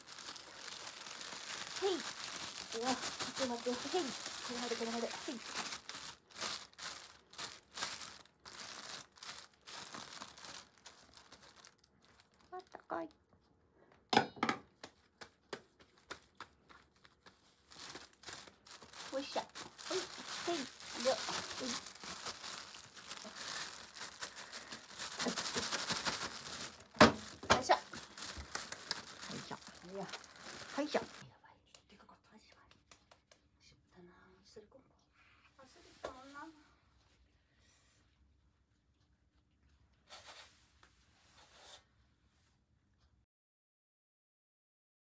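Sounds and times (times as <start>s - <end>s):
plastic bag crinkling: 0.0s - 13.1s, 16.6s - 31.2s.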